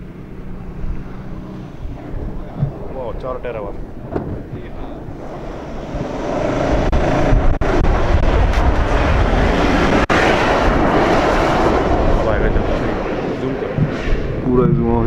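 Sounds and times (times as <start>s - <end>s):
diesel suv engine accelerating: 5.0s - 13.9s.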